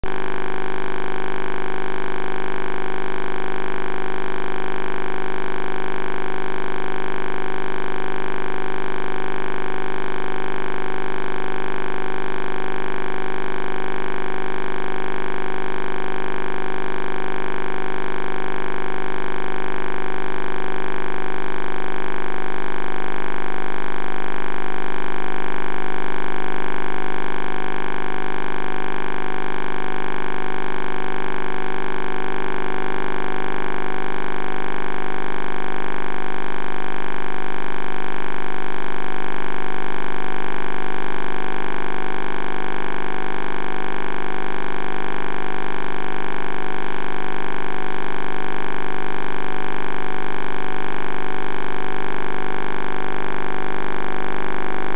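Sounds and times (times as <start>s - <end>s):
loud electrical buzz: 0.0s - 40.5s.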